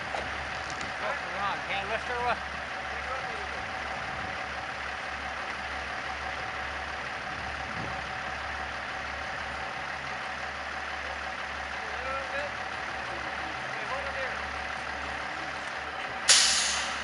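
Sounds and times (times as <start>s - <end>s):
truck engine running: 0.0s - 17.0s.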